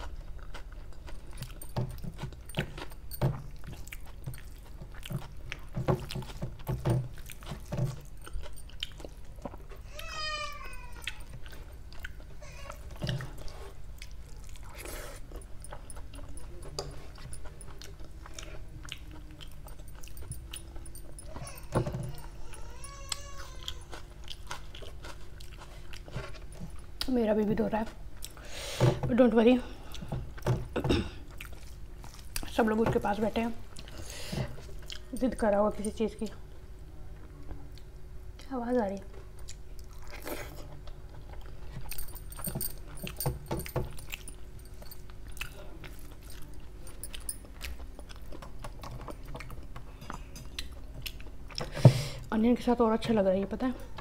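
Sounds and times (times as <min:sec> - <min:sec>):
chewing and mouth clicks: 0:00.0 - 0:09.9, 0:10.7 - 0:28.4, 0:31.3 - 0:32.7, 0:33.7 - 0:35.9, 0:39.4 - 0:51.7
young child wailing: 0:09.9 - 0:11.2, 0:21.3 - 0:23.9.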